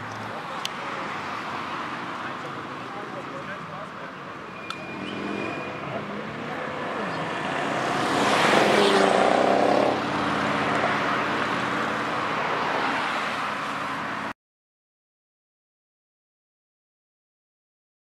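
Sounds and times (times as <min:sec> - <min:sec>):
city traffic: 0:00.0 - 0:14.4
car driving past: 0:04.5 - 0:14.2.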